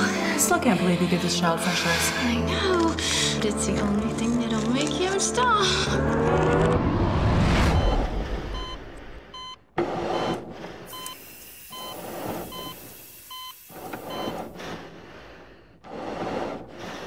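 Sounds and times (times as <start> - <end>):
heart monitor beeping: 7.7 - 14.6.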